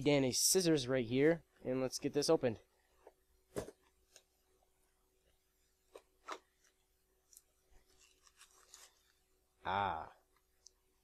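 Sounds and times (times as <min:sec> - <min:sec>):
faint packaging rustling: 0:05.8 - 0:09.3.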